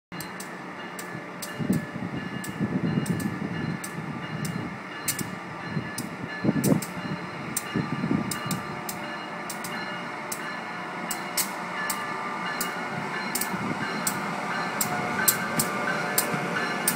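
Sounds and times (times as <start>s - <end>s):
train rumbling: 0.1s - 16.9s
wheels clicking over rail joints: 14.8s - 16.9s.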